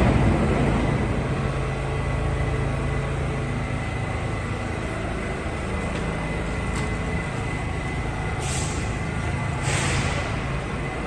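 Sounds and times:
subway car humming: 0.0s - 11.0s
air brake hisses: 8.4s - 10.6s.

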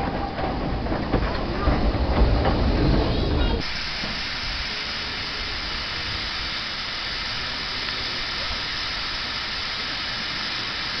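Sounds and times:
steam hissing from locomotive: 3.6s - 11.0s.

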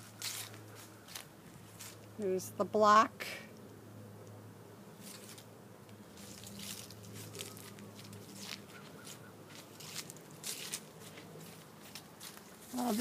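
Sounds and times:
footsteps through dry leaves: 0.0s - 2.0s, 5.0s - 13.0s.

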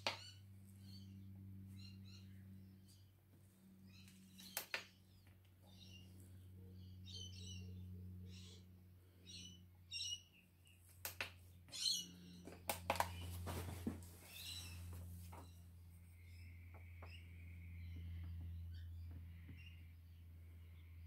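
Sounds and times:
low steady hum: 0.0s - 21.0s
sharp clicks: 4.4s - 5.0s, 10.9s - 11.4s
bird chirps: 11.7s - 13.3s.

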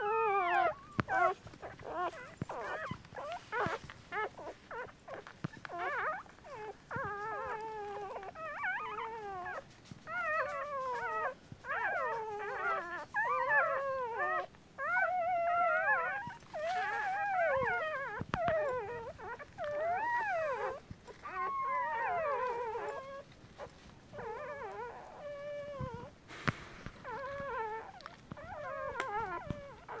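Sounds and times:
puppies squealing: 0.0s - 26.1s, 27.0s - 30.0s.

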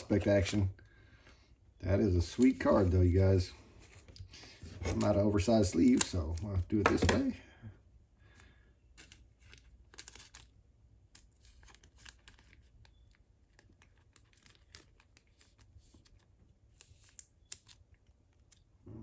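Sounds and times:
plastic card sleeves rustling: 2.0s - 7.4s, 8.9s - 18.8s.

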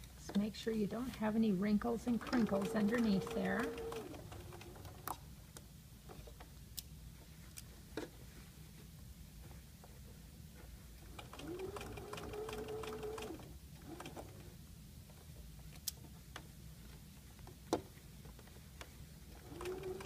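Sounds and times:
sewing machine stitching: 2.1s - 5.1s, 11.1s - 14.4s, 19.4s - 20.0s.

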